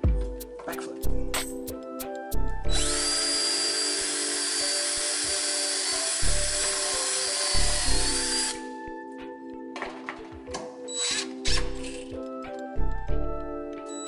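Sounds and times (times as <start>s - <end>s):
background music: 0.0s - 14.0s
cordless drill boring into wood: 2.7s - 8.7s, 10.9s - 12.1s.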